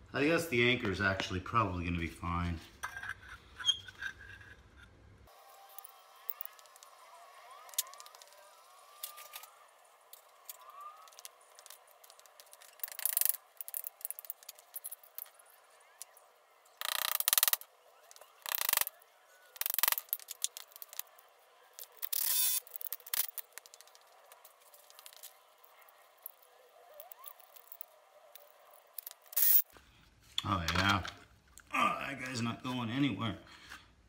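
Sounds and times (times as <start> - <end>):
small metal clinks: 10.2 - 15.4, 21.8 - 29.6.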